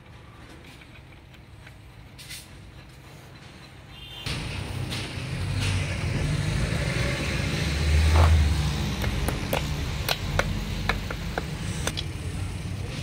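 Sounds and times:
vehicle engine rumble: 0.0 - 13.0.

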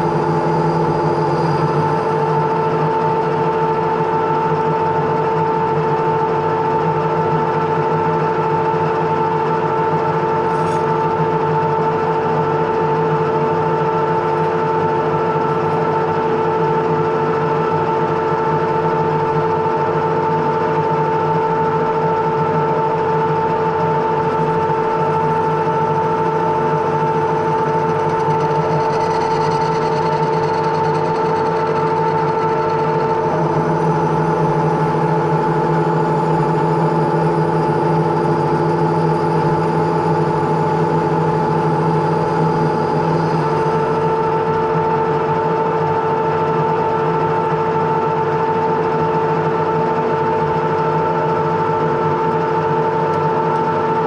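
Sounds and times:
steady whine: 0.0 - 6.5, 9.2 - 17.6, 22.9 - 45.7
metal lathe running: 0.0 - 54.0.

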